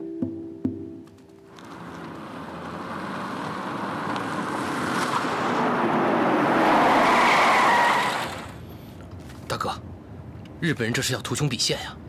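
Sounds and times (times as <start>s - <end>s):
car engine and tyre noise: 1.5s - 9.5s.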